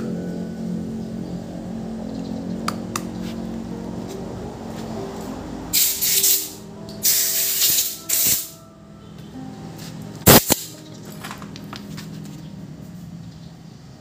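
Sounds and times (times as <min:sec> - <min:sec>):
compressed air hissing: 0:05.7 - 0:08.6
sharp air blasts: 0:05.7 - 0:08.6, 0:10.2 - 0:10.8.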